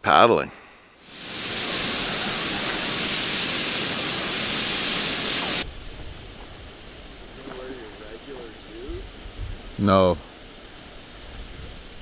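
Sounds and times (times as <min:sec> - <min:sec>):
faint hiss: 0:00.0 - 0:12.0
loud rushing hiss: 0:00.6 - 0:12.0.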